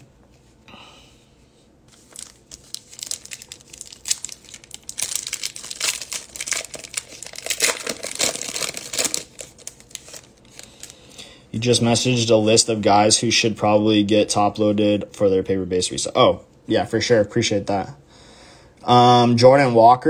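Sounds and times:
plastic wrapper tearing and crinkling: 0:01.9 - 0:11.1.

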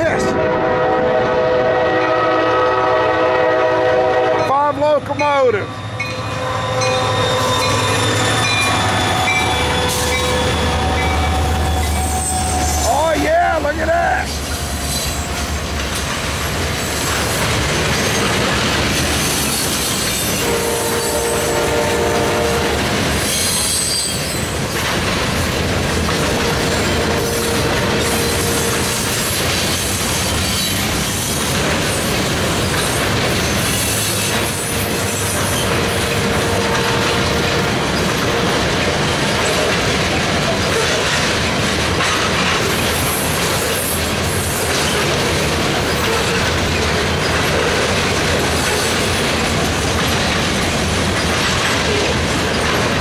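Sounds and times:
freight train rumbling on rails: 0:00.0 - 0:53.0.

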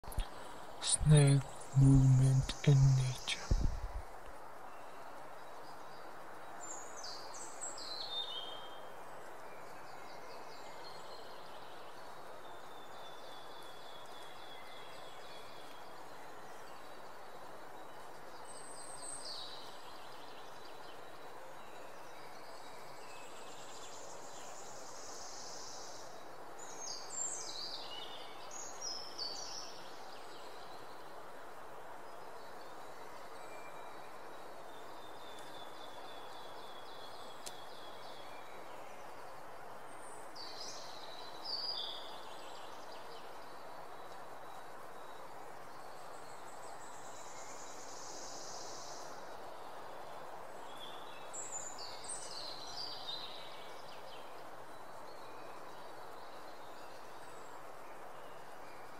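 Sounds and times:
birds chirping: 0:00.0 - 0:04.0
steady background hiss: 0:00.1 - 0:58.9.

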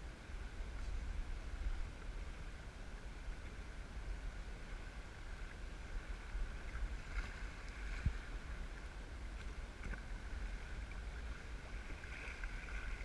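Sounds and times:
wind rumble on microphone: 0:00.0 - 0:13.0
water splashing against kayak hull: 0:04.5 - 0:13.0.

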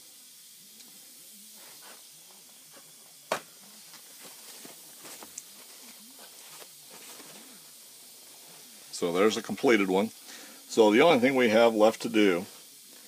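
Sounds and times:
faint hiss: 0:00.0 - 0:13.0
paper towel rustling: 0:04.0 - 0:07.6.

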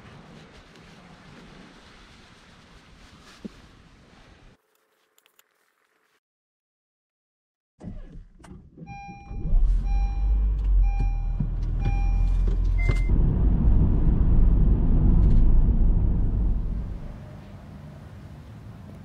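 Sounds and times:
car engine rumble: 0:07.9 - 0:19.0
dashboard warning chime: 0:08.9 - 0:13.1
short high beep: 0:08.9 - 0:13.1.

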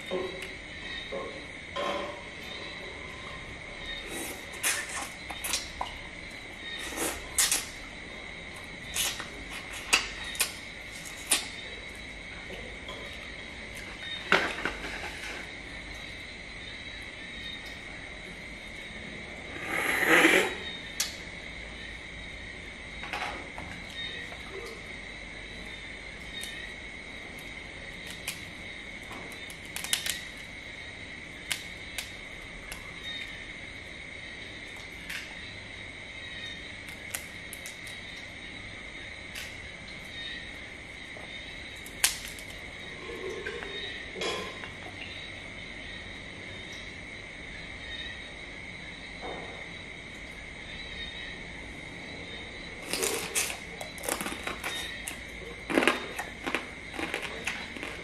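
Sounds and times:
crab shell cracking and crunching: 0:29.3 - 0:30.5, 0:36.8 - 0:38.0, 0:41.8 - 0:42.6, 0:52.8 - 0:58.0.

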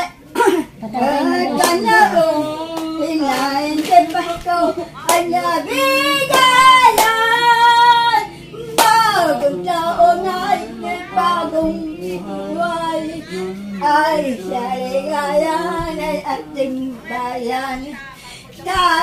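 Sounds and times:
elderly woman singing a carol: 0:00.0 - 0:19.0
sharp hand clap: 0:01.6 - 0:02.0, 0:06.3 - 0:07.3, 0:08.6 - 0:09.1.

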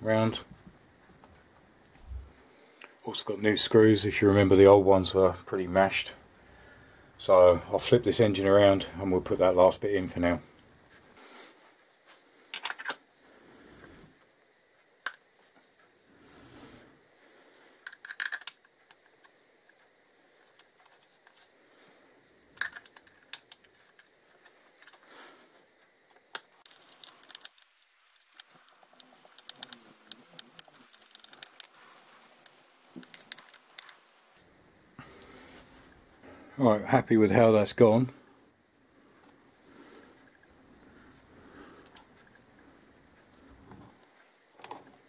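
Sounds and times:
small metal parts clinking: 0:17.8 - 0:18.7, 0:22.6 - 0:24.2, 0:26.7 - 0:31.7.

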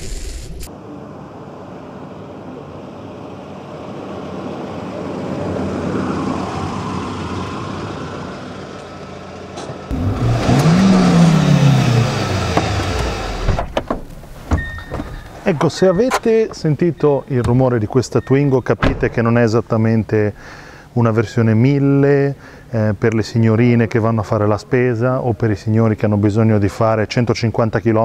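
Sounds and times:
car engine revving: 0:02.4 - 0:14.4
car driving over cobblestones: 0:06.8 - 0:17.8.

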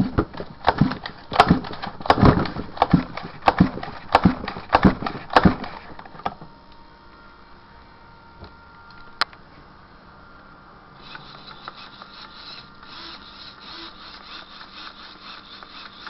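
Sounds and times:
mechanism knocking and clattering: 0:00.0 - 0:05.8.

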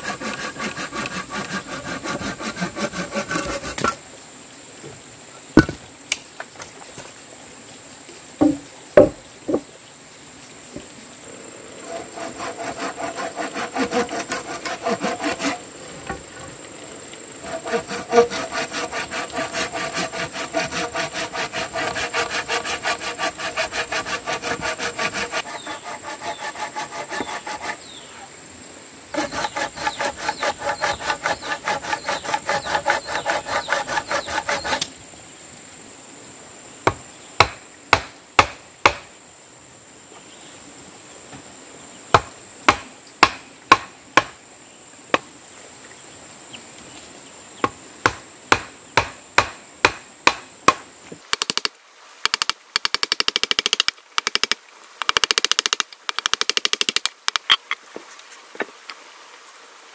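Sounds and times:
hand saw cutting timber: 0:00.0 - 0:04.0, 0:11.8 - 0:15.7, 0:17.4 - 0:28.0, 0:29.1 - 0:35.0.

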